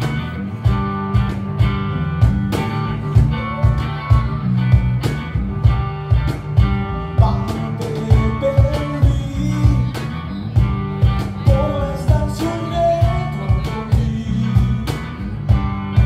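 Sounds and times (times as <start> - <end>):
cajon beat: 0.0 - 16.0
electric bass: 0.0 - 16.0
electric guitar: 0.0 - 16.0
man singing into microphone: 7.2 - 10.1, 11.4 - 15.2.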